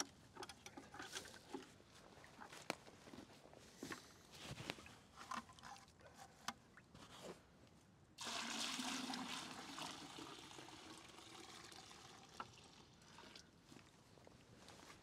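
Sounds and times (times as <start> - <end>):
sap pouring into bucket: 8.2 - 13.6.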